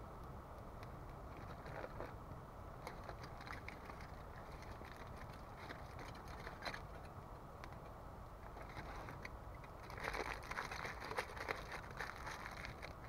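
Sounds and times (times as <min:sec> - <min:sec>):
campfire popping: 0:00.1 - 0:13.0
aluminium foil crinkling: 0:08.6 - 0:13.0.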